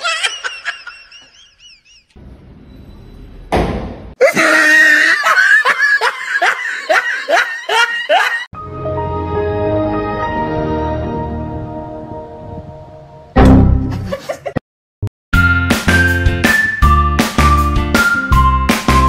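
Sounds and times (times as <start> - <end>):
person laughing hard: 0.0 - 2.1, 4.2 - 8.5, 13.9 - 14.6.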